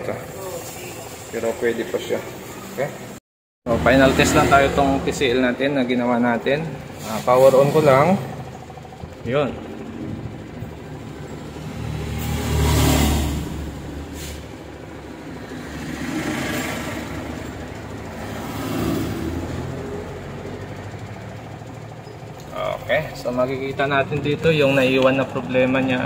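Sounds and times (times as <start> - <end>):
traffic passing by: 0.0 - 26.0.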